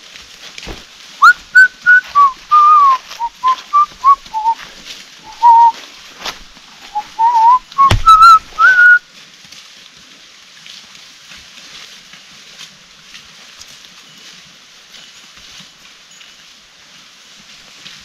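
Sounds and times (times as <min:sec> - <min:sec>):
person whistling short notes: 0:01.2 - 0:04.6, 0:05.2 - 0:05.8, 0:06.8 - 0:09.0
sharp knock: 0:07.8 - 0:08.6.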